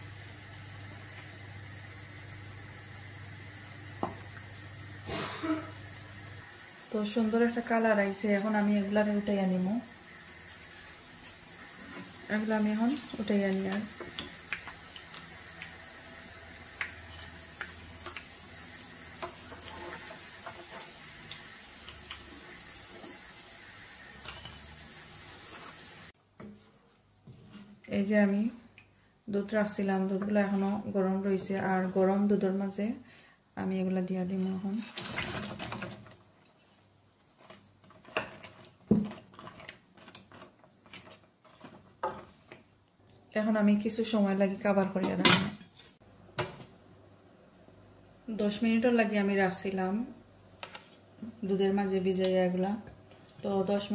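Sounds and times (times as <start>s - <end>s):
deep-frying sizzle: 0.0s - 26.2s
spatula scraping pan: 19.2s - 21.2s, 37.4s - 42.7s.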